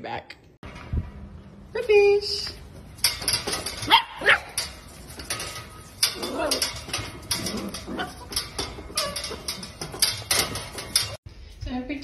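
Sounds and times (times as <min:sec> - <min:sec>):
puppies barking: 0:03.6 - 0:10.2.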